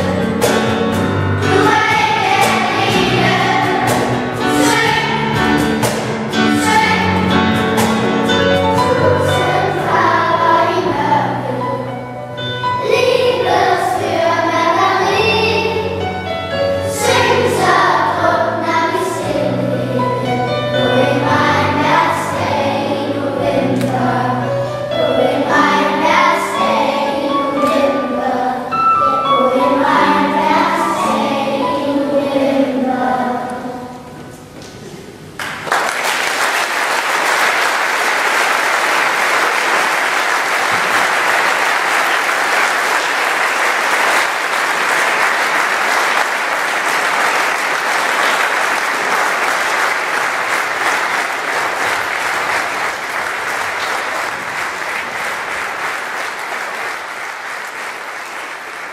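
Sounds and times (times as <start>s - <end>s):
children's choir singing: 0.0s - 34.4s, 37.2s - 58.9s
audience applause: 35.4s - 58.9s.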